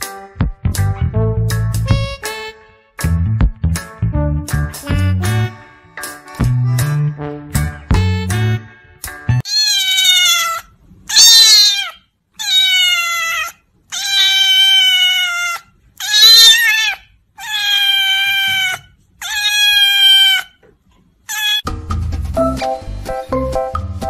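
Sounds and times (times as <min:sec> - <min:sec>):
background music: 0:00.0 - 0:09.4, 0:21.6 - 0:24.0
kitten meowing loudly: 0:09.4 - 0:20.5, 0:21.3 - 0:21.6.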